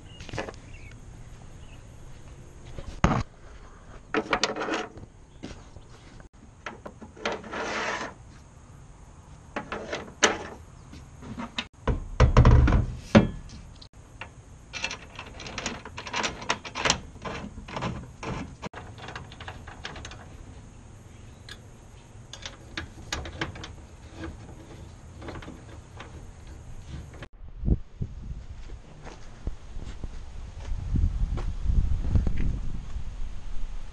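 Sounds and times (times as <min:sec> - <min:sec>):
metal rack clunking and scraping: 0:04.1 - 0:08.2, 0:09.5 - 0:20.7, 0:21.4 - 0:27.3.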